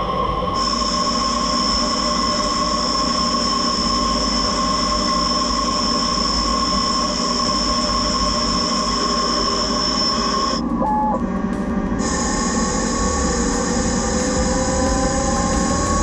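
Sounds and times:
milling spindle high whine: 0.0s - 16.0s
coolant spray hiss: 12.0s - 16.0s.

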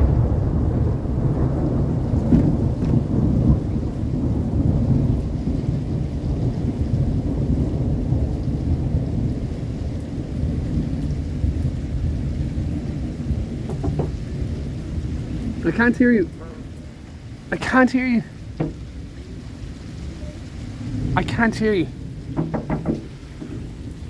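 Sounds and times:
rolling thunder: 0.0s - 17.5s, 18.2s - 24.0s
rain falling: 0.0s - 24.0s.

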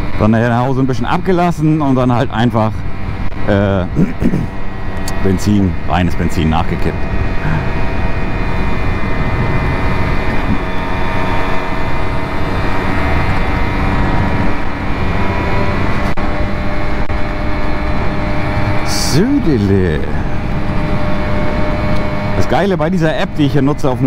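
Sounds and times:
moped engine running: 0.0s - 24.0s
wind rush on microphone: 6.9s - 19.4s, 20.1s - 22.4s.

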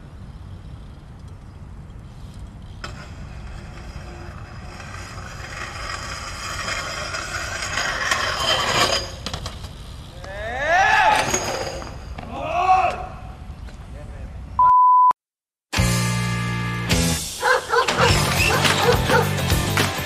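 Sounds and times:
bike pegs grinding on stone ledge: 2.1s - 12.3s.

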